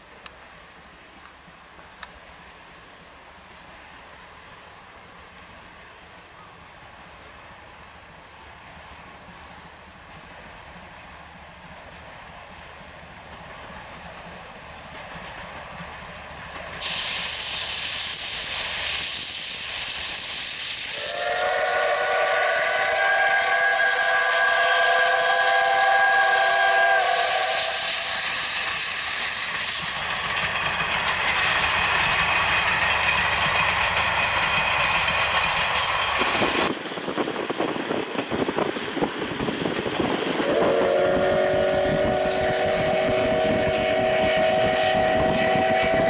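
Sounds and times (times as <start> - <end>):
faint rain: 0.0 - 34.8
loud hiss of steam: 0.0 - 46.0
steam whistle blast: 16.8 - 30.2, 40.3 - 46.0.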